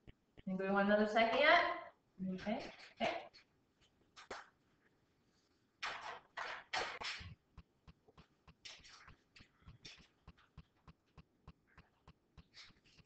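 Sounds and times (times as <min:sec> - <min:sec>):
faint clicks and taps: 0:00.0 - 0:00.5, 0:07.3 - 0:13.0.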